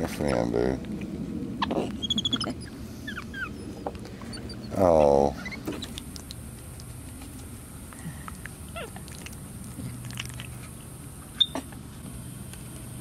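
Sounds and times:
monkeys squeaking and chirping: 1.6s - 4.8s, 5.4s - 6.1s.

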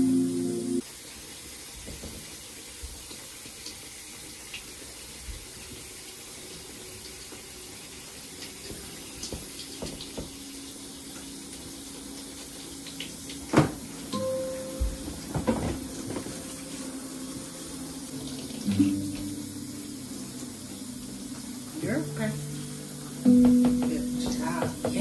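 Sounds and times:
shower spray hissing: 0.0s - 25.0s
water ticks: 11.1s - 13.5s, 18.0s - 25.0s.

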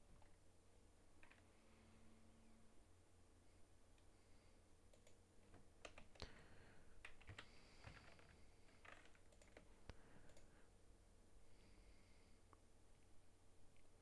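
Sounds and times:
faint keyboard typing: 1.2s - 1.6s, 4.8s - 10.7s.

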